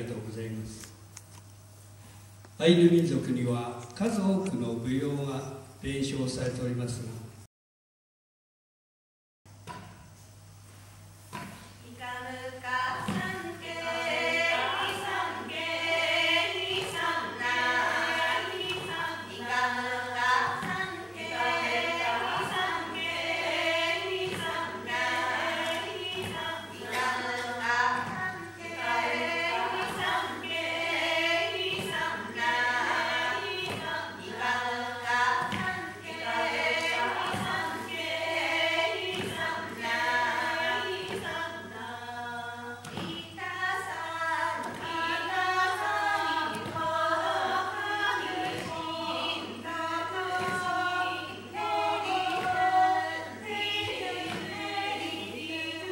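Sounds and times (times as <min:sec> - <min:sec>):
steady low hum: 0:09.5 - 0:55.9
women singing unaccompanied: 0:11.3 - 0:55.9
dull thumps beating time: 0:12.9 - 0:41.5, 0:44.4 - 0:55.1.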